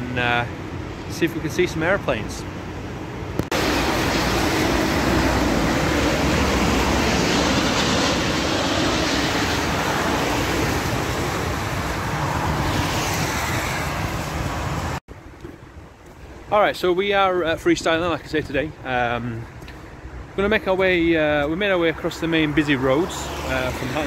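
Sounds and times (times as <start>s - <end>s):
jet airliner engines roaring: 0.0s - 15.0s, 21.4s - 24.0s
road traffic: 0.0s - 16.9s, 17.5s - 24.0s.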